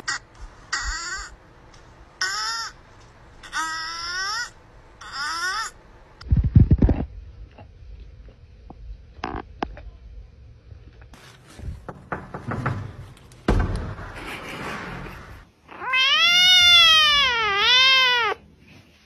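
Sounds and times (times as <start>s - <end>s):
kitten meowing: 15.8s - 18.4s.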